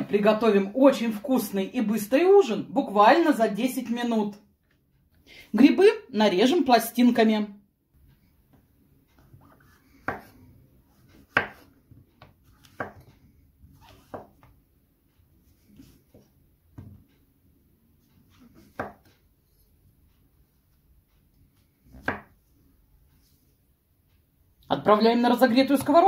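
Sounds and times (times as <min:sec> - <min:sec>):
knife slicing on wooden board: 0:11.2 - 0:11.7.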